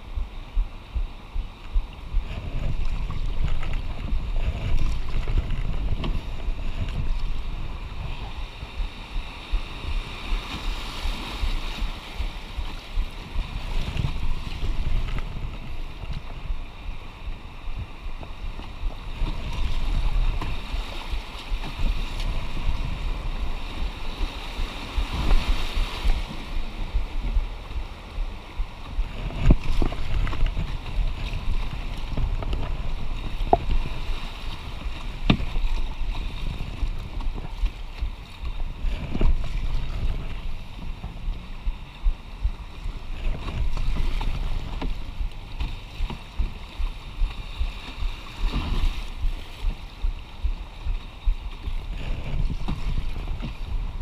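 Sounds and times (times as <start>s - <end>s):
wind buffeting microphone: 0.0s - 54.0s
knocks on canoe: 34.7s - 38.2s, 43.2s - 47.4s.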